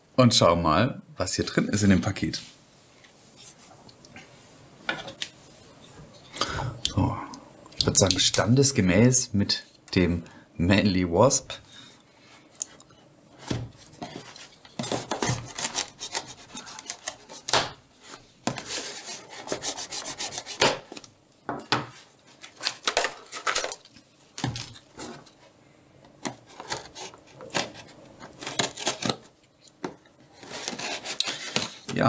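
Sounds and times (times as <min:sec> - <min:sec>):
knife slicing packing tape: 0:14.9 - 0:17.5, 0:28.4 - 0:29.2.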